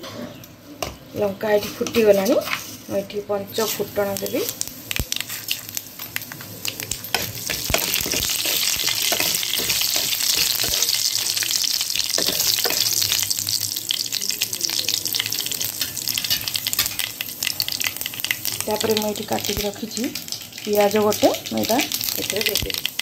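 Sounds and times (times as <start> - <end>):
spatula scraping wok: 0.0 - 4.6, 5.2 - 14.2, 14.8 - 19.6
spices sizzling in hot oil: 0.3 - 23.0
seeds popping: 3.6 - 13.3.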